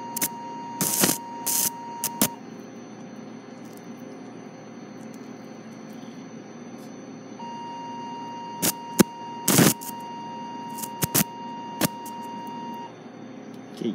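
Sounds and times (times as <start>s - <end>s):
steady beep tone: 0.0s - 2.4s, 4.4s - 13.0s
sharp sparking crackles: 0.2s - 2.4s, 8.6s - 9.9s, 10.7s - 12.1s.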